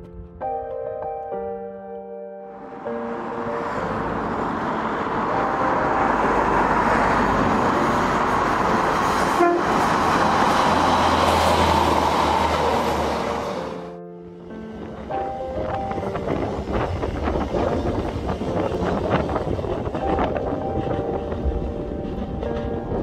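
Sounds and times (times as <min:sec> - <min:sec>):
train engine rumble: 0:02.6 - 0:23.0
train wheels on rail: 0:06.8 - 0:13.9, 0:14.7 - 0:23.0
train horn toot: 0:09.2 - 0:10.1.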